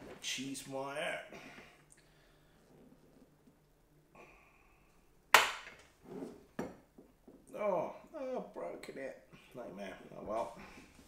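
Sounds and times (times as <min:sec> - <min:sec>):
wire snapping with loud crack: 0:05.3 - 0:05.9.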